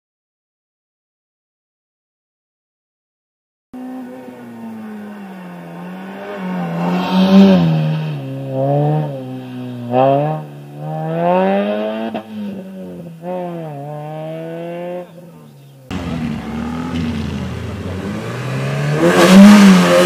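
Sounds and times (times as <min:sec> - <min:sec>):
car engine revving hard: 0:03.8 - 0:12.5, 0:15.9 - 0:20.0.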